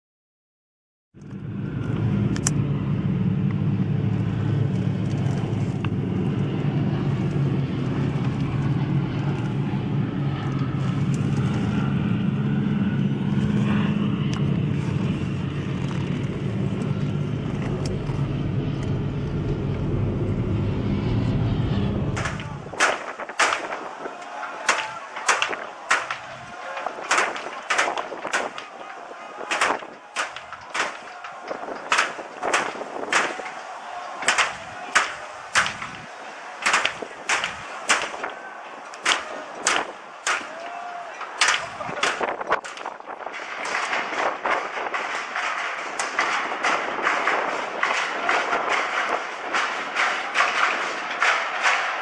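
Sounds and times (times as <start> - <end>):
car road and engine rumble: 1.2 - 24.4
sharp cracks or knocks: 22.2 - 52.0.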